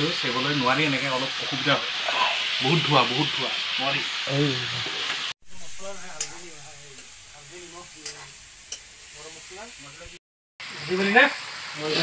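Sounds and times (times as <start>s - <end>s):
food sizzling in a pot: 0.0s - 12.0s.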